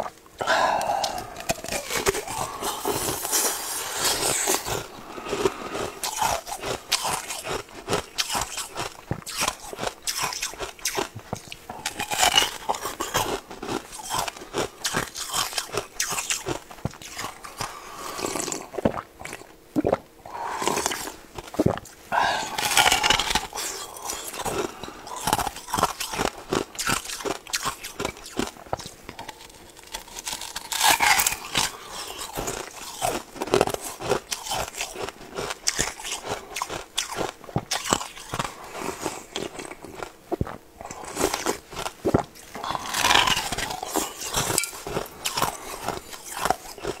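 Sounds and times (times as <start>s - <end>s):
mouth clicks and smacks: 0.0s - 13.2s, 13.9s - 24.6s
person biting fruit: 0.0s - 47.0s.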